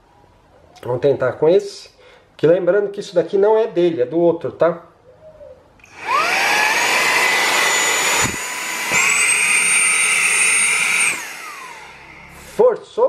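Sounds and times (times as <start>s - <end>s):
mini vacuum motor whine: 5.8s - 12.7s.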